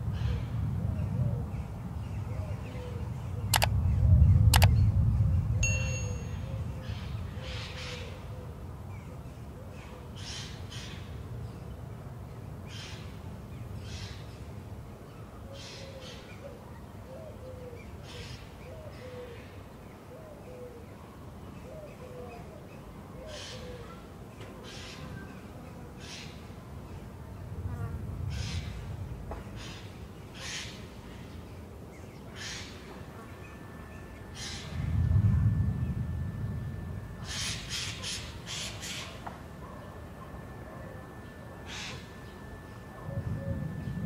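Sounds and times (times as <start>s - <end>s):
sharp click: 4.5s - 4.7s
bell-like ding: 5.6s - 6.5s
low whoosh: 34.4s - 38.0s.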